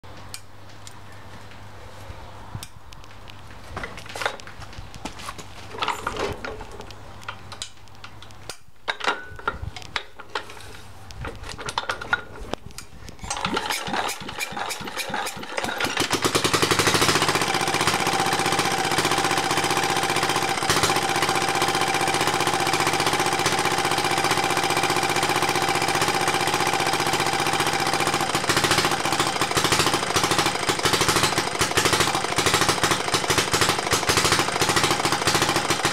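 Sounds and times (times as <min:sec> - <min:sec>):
engine cranking: 0:13.2 - 0:35.9
diesel engine running: 0:13.4 - 0:35.9.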